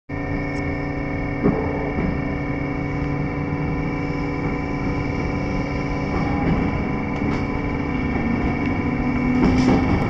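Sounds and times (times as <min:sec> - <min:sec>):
electric train rumbling and humming: 0:00.1 - 0:10.0
train knock: 0:01.4 - 0:02.6, 0:03.6 - 0:10.0.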